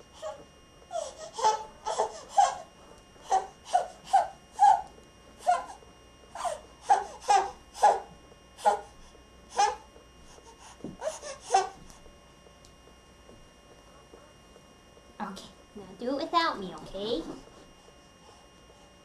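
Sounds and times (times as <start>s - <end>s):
baby laughing in high squeals: 3.2s - 5.8s.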